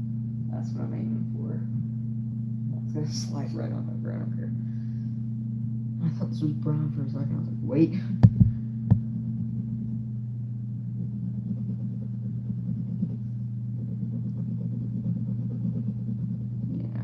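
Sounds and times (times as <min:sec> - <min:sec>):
steady low hum: 0:00.0 - 0:17.0
sharp tap: 0:08.2 - 0:09.0.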